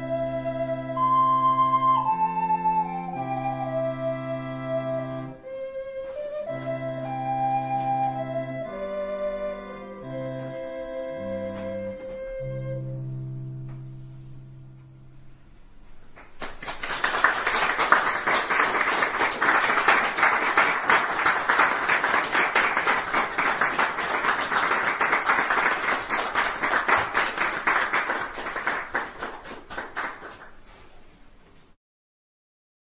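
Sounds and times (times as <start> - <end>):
audience applauding: 16.1 - 30.7.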